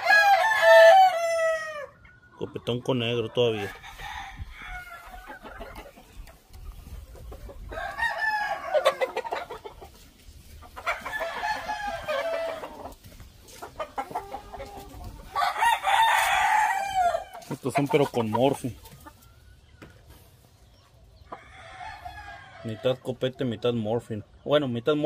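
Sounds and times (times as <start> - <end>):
roosters crowing: 0.0 - 2.3, 3.4 - 6.1, 6.8 - 19.7, 21.2 - 23.3.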